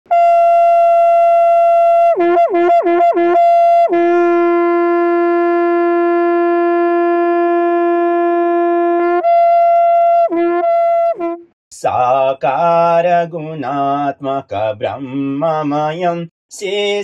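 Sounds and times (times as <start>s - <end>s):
conch shell blown: 0.1s - 11.6s.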